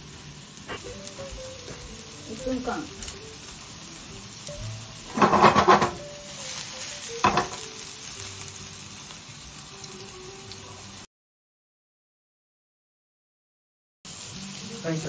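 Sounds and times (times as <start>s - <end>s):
patties sizzling in oil: 0.0s - 11.1s, 14.1s - 15.0s.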